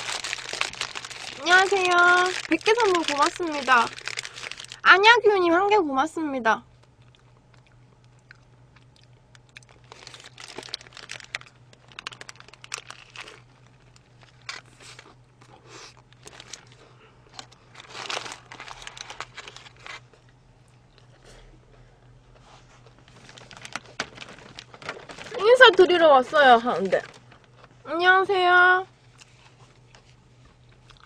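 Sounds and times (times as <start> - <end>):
paper wrapper crinkling: 0.0 - 4.9, 9.3 - 15.2, 15.9 - 20.2, 22.9 - 27.9
crunchy chewing: 6.8 - 21.4, 29.1 - 31.0.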